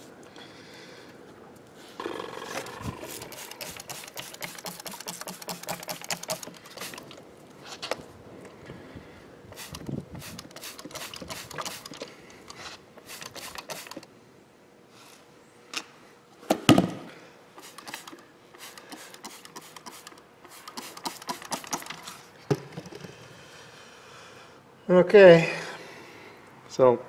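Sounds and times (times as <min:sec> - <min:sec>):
tire rubbing and knocking: 0:02.0 - 0:07.2.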